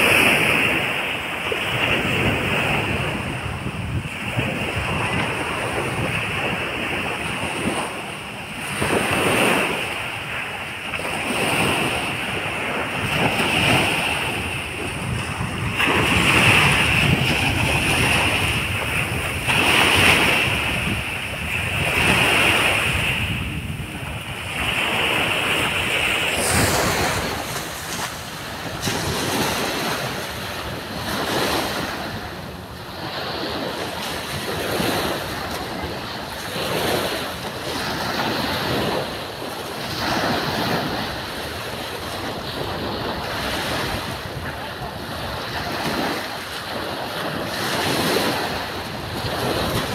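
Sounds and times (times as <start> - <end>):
small waves breaking on beach: 0.0 - 49.9
wind buffeting microphone: 0.0 - 49.9.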